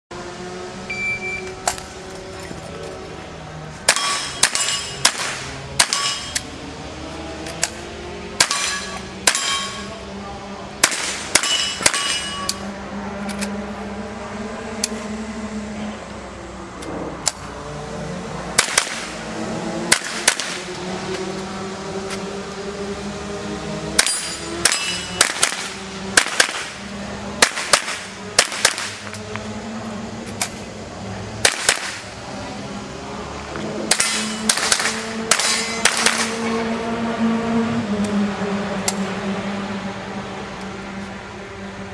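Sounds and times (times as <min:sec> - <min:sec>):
metallic ring: 0:04.0 - 0:05.0, 0:05.9 - 0:06.4, 0:08.5 - 0:10.0, 0:11.5 - 0:12.6, 0:24.0 - 0:25.2
rifle shots: 0:18.6 - 0:19.1, 0:24.0 - 0:26.8, 0:27.4 - 0:29.0, 0:31.4 - 0:32.1, 0:33.9 - 0:36.4.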